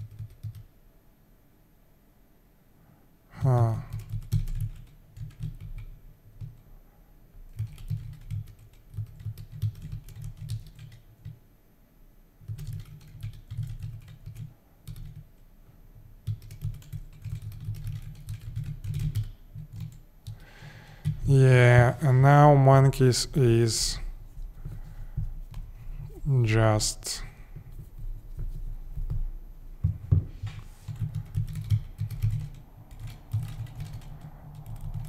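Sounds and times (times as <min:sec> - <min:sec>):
typing on computer keyboard: 0:00.0 - 0:00.7, 0:03.8 - 0:06.6, 0:07.5 - 0:11.4, 0:12.4 - 0:15.3, 0:16.2 - 0:21.2, 0:30.9 - 0:35.0.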